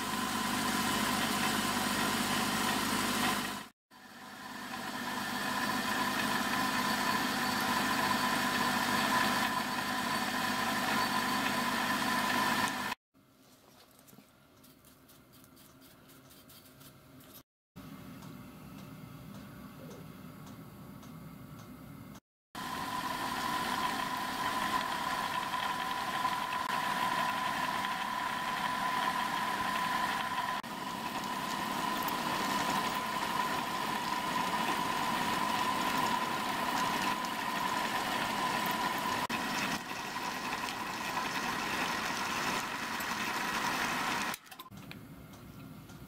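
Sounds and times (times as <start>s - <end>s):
milling machine whining: 0.0s - 13.0s, 22.6s - 44.7s.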